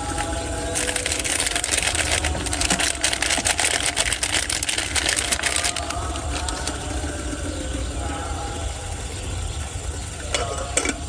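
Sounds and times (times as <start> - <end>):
plastic wrapper crinkling: 0.0 - 6.5.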